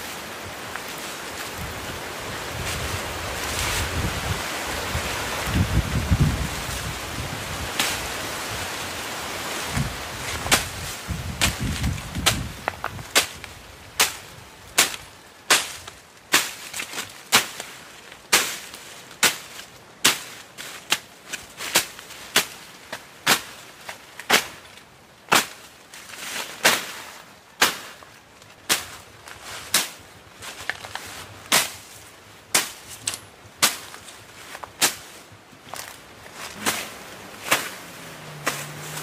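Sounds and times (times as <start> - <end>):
machete slashing through grass: 10.3 - 12.5, 31.5 - 31.9, 32.5 - 34.0, 34.8 - 35.2, 35.8 - 39.0.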